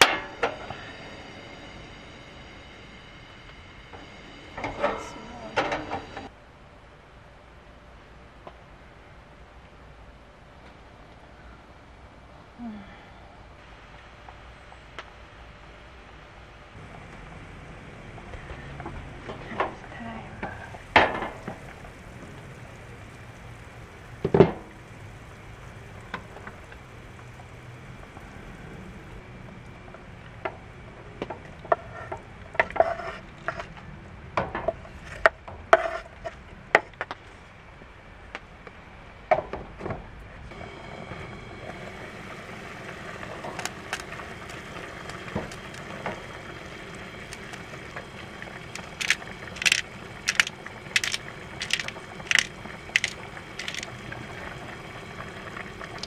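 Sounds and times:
food sizzling in pot: 0.0s - 6.3s, 16.8s - 30.8s, 40.5s - 56.0s.

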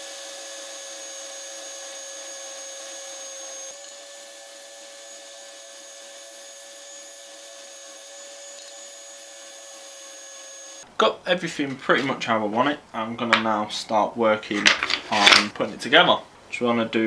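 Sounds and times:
spindle sander motor whine: 0.0s - 10.8s.

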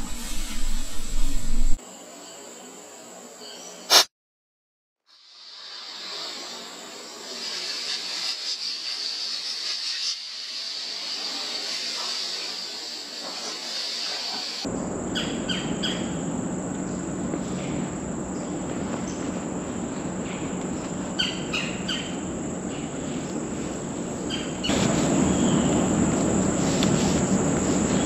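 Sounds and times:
low rushing noise: 0.0s - 1.8s
insect chorus: 1.8s - 3.9s, 5.1s - 28.0s.

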